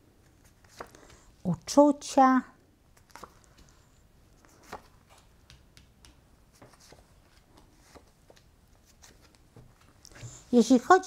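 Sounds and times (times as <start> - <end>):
cards tapping and sliding: 4.4 - 10.4.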